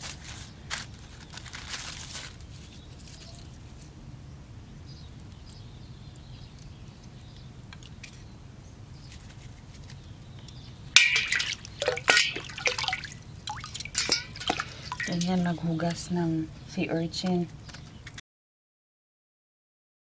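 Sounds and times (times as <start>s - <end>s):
water splashing and sloshing: 11.0s - 16.2s.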